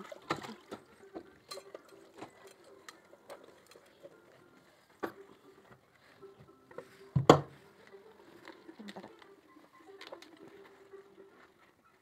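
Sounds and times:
saucepan and dishes clinking: 0.2 - 4.2.

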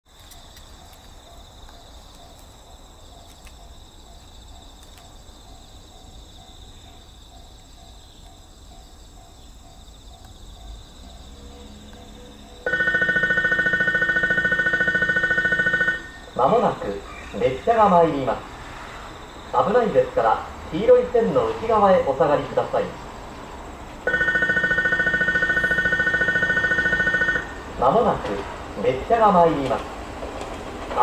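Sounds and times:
insects chirring: 0.1 - 31.0
pulsing electronic warning tone: 11.3 - 16.8, 24.1 - 28.0.

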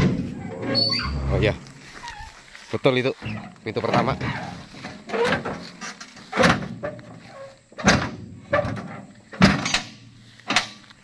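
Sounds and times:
tailgate rattling: 4.0 - 10.8
steel tailgate knocking and clanking: 7.8 - 10.8.

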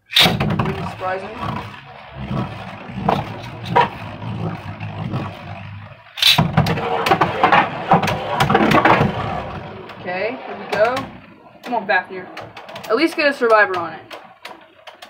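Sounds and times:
spinning top whirring: 0.0 - 15.0
tops clacking and scraping: 0.0 - 15.0.

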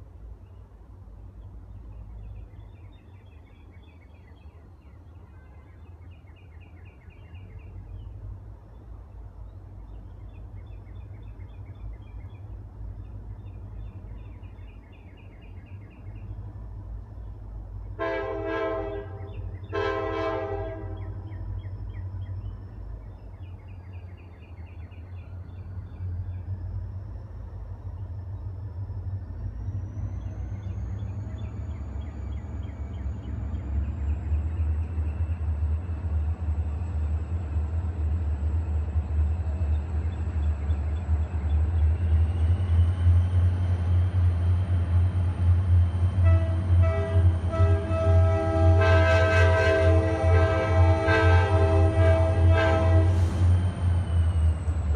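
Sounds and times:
locomotive rumble: 0.0 - 54.9
locomotive horn blasts: 18.0 - 21.2, 46.2 - 53.4.

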